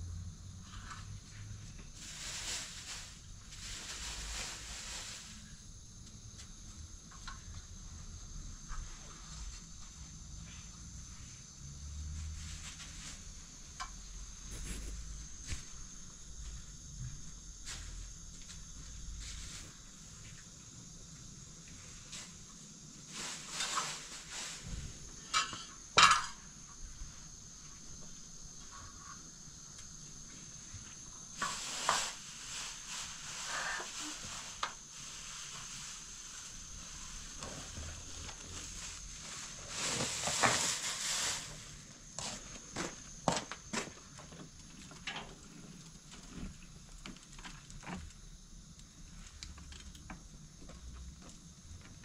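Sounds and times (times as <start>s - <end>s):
plastic bags and cloth rustling: 1.8s - 5.6s, 12.2s - 13.5s, 21.9s - 25.2s, 31.2s - 43.0s
footsteps on concrete floor: 50.6s - 52.0s.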